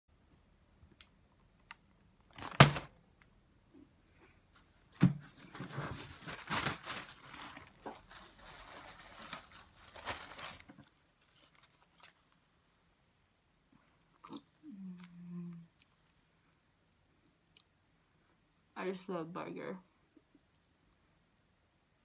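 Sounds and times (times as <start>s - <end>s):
paper or fabric rustling: 5.3s - 12.4s.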